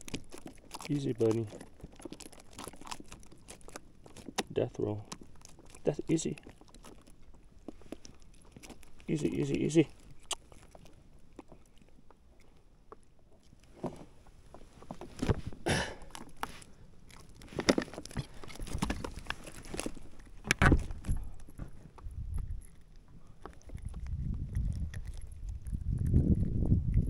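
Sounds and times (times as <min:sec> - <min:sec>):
fish thrashing: 0:00.0 - 0:25.9
knocks and handling noises: 0:13.7 - 0:22.1.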